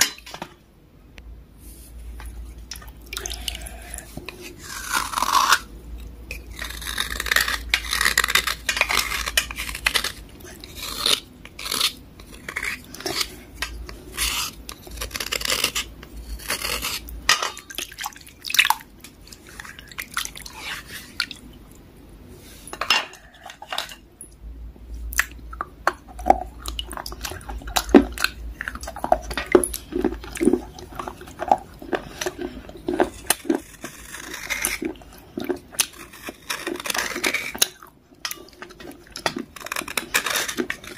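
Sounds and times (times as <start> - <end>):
water dripping: 2.7 - 3.6.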